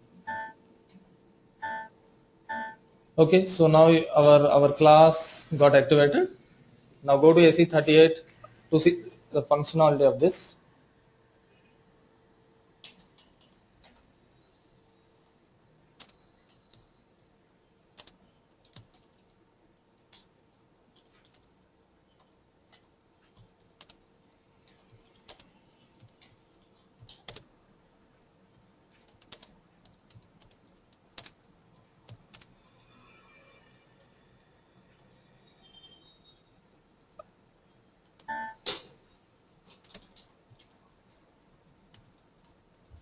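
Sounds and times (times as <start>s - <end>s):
computer keyboard keystrokes: 16.0s - 16.8s, 17.9s - 19.3s, 20.0s - 21.5s, 22.2s - 27.5s, 28.5s - 32.5s, 39.7s - 40.8s, 41.9s - 42.9s.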